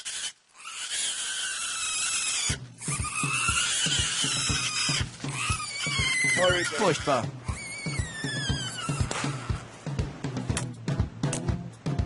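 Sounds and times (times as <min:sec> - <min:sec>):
piglet squealing: 0:00.0 - 0:09.7.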